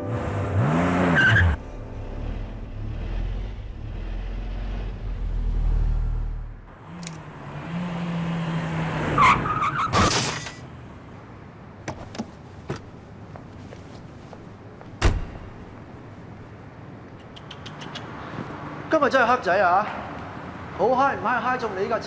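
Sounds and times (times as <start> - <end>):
car engine revving: 0.0 - 9.2
tyres screeching: 8.0 - 10.6.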